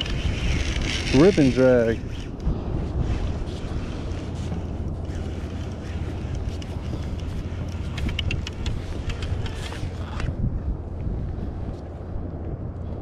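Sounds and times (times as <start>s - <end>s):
wind buffeting microphone: 0.0s - 13.0s
sharp clicks: 5.1s - 10.3s.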